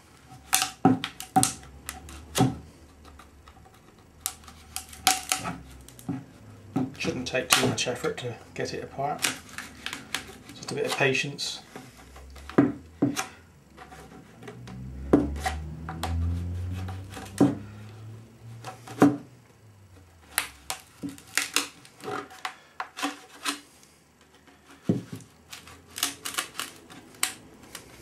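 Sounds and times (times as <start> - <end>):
plastic wedges knocking: 0.4 - 2.7, 4.2 - 8.0, 11.7 - 17.8, 18.6 - 19.3, 20.2 - 23.6, 24.3 - 27.9.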